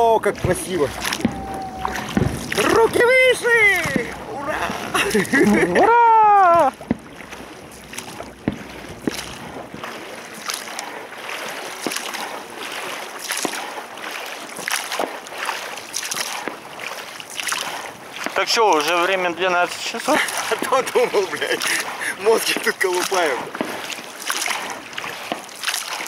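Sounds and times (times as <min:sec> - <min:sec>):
distant fireworks popping: 0:00.0 - 0:12.6, 0:16.0 - 0:26.0
water washing: 0:00.0 - 0:26.0
wind: 0:00.0 - 0:26.0
person shouting: 0:01.1 - 0:06.8.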